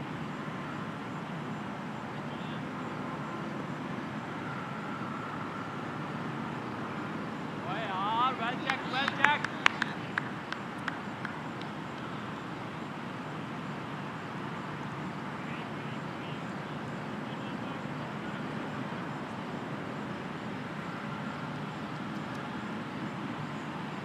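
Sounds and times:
outdoor background noise: 0:00.0 - 0:24.0.

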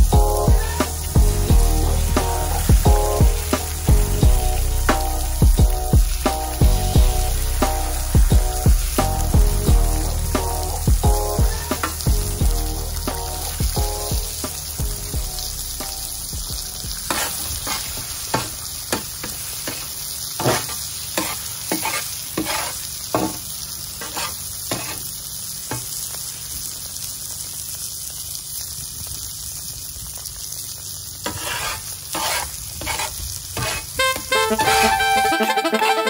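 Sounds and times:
eggs sizzling on griddle: 0:00.0 - 0:36.0
metal spatula scraping griddle: 0:17.1 - 0:18.6, 0:20.4 - 0:23.4, 0:24.0 - 0:25.1, 0:31.2 - 0:35.5.

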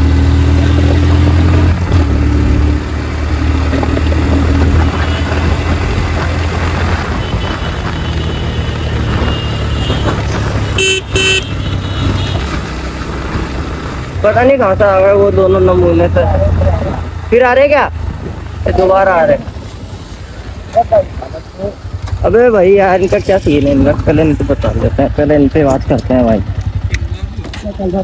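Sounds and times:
motorcycle engine running: 0:00.0 - 0:19.0, 0:21.0 - 0:28.0
wind and road noise: 0:00.0 - 0:28.0
short horn beeps: 0:10.8 - 0:11.5.

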